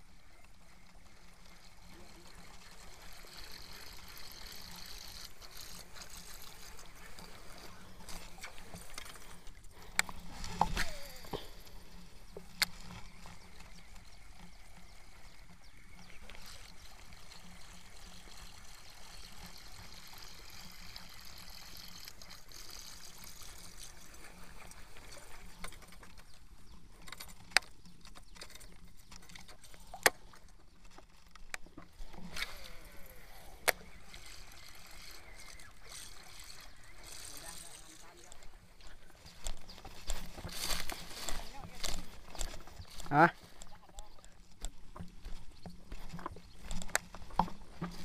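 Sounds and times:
reel spool whirring: 0.0 - 48.0
fishing reel clicks: 0.4 - 26.3, 31.4 - 43.8.

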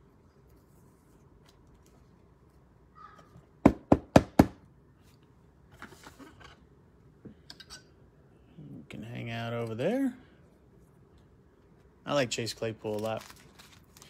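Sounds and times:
soft handling noise: 0.0 - 2.7, 5.0 - 7.4, 12.6 - 14.0.

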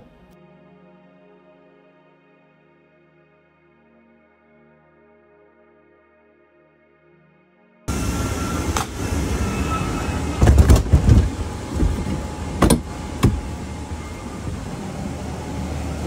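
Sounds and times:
airport ramp rumbling hiss: 7.9 - 16.0
knocks and thumps: 10.4 - 13.4.

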